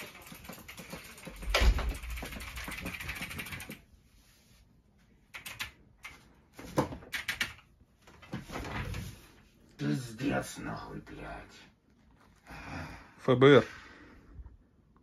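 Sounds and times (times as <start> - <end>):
typing on computer keyboard: 0.0 - 3.8, 5.3 - 6.3, 7.0 - 7.7.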